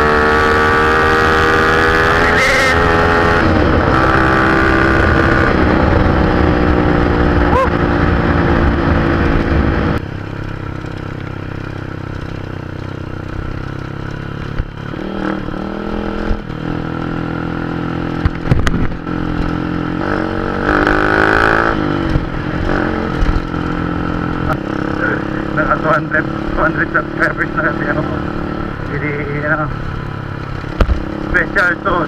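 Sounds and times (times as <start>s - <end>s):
motorcycle engine revving: 0.0s - 32.0s
sharp knocks and rattles: 10.3s - 15.0s.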